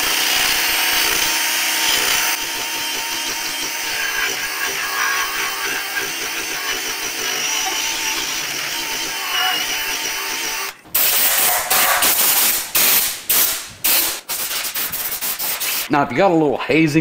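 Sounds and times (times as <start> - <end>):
drill spinning eraser wheel: 0.0 - 12.6
compressed air blasts: 10.9 - 15.9.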